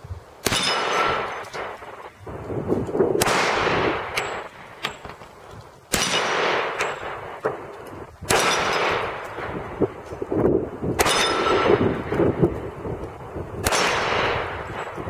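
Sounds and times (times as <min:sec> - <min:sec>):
pistol shots with echo: 0:00.4 - 0:02.2, 0:03.2 - 0:05.1, 0:05.9 - 0:09.8, 0:10.9 - 0:12.3, 0:13.6 - 0:15.0.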